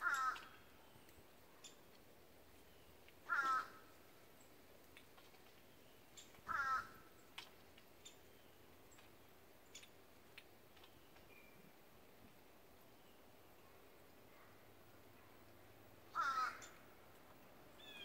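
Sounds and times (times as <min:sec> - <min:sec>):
bird calling: 0:16.1 - 0:16.8, 0:17.8 - 0:18.0.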